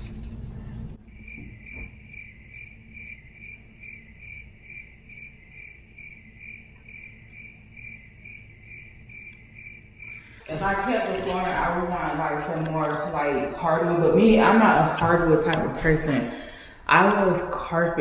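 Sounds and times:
crickets chirping: 1.0 - 11.0.

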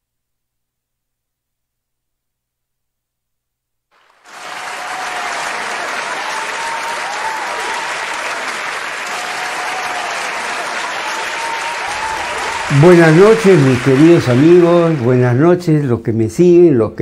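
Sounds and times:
crowd applause: 4.0 - 15.6.

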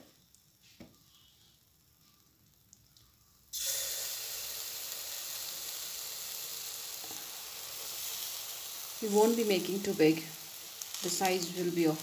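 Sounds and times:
batter sizzling in hot oil: 0.0 - 12.0.

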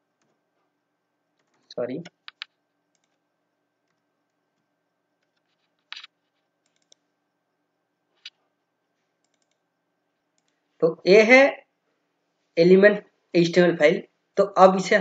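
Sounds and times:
computer mouse clicks: 1.4 - 3.2, 3.8 - 7.1, 8.2 - 8.4, 9.2 - 9.6, 10.3 - 10.6.

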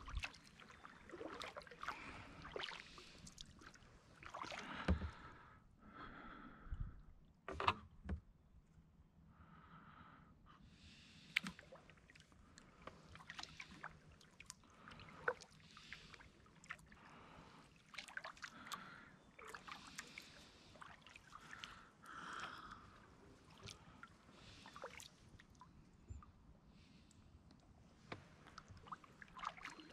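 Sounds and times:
paddle swishing in water: 0.0 - 5.4, 11.4 - 17.0, 17.6 - 25.9, 27.8 - 29.9.

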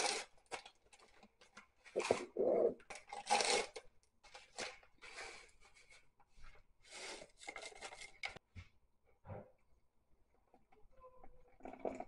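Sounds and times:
paper packets tearing and rustling: 1.9 - 4.8.

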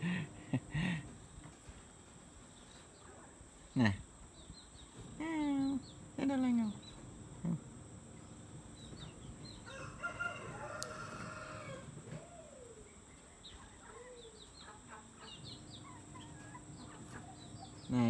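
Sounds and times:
small bird chirps: 8.2 - 9.7, 12.4 - 18.0
faint animal calls: 10.4 - 18.0.

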